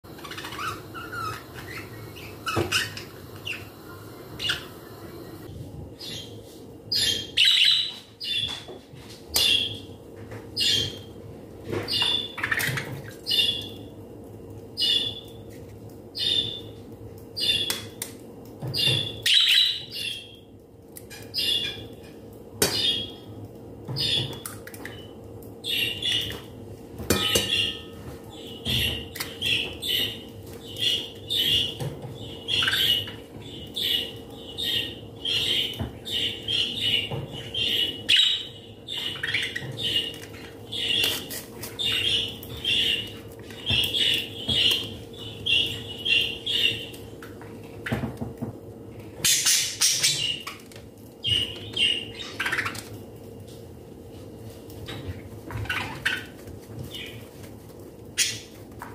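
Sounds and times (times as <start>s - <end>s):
faint steady hum: 0.0s - 58.9s
bird chirping: 0.1s - 5.4s, 6.0s - 8.6s.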